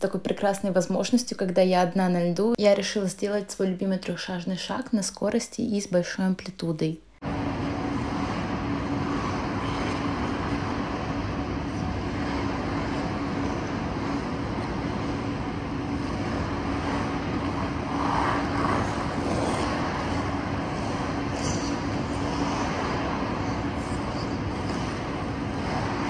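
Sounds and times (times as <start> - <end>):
steady machine hum: 7.0 - 26.0.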